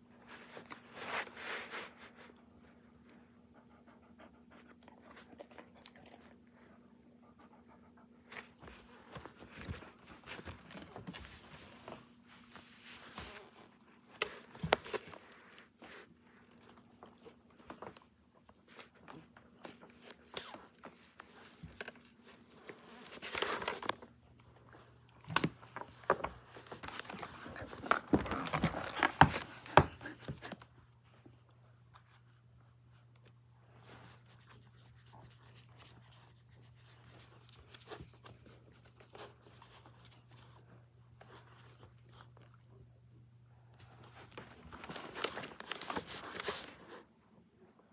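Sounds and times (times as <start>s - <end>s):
puppy scuffling on wooden floor: 8.3s - 18.0s, 19.6s - 32.3s, 43.7s - 47.0s.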